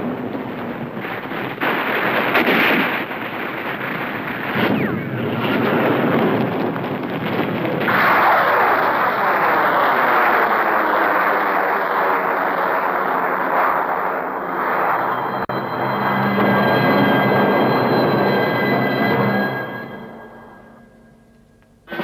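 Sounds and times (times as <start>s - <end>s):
diving warplane engine: 7.9s - 19.5s.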